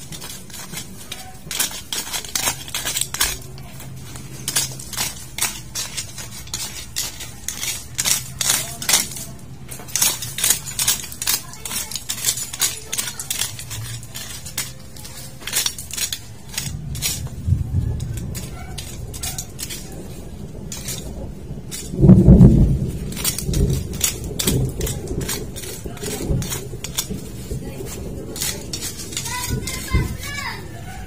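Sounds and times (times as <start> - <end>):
rapid clicks and light scrapes: 0.0 - 31.0
low rumble: 13.3 - 31.0.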